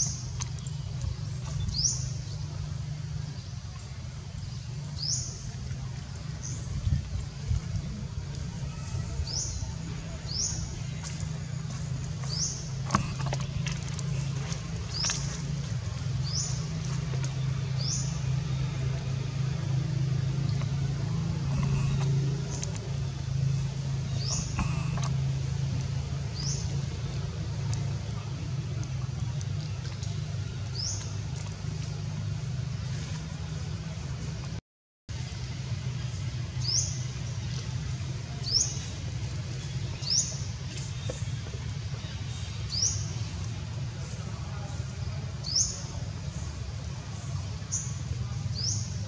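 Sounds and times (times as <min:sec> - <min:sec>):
steady low rumble: 0:00.0 - 0:42.5
low motor hum: 0:00.0 - 0:49.0
bird chirping: 0:24.0 - 0:25.1.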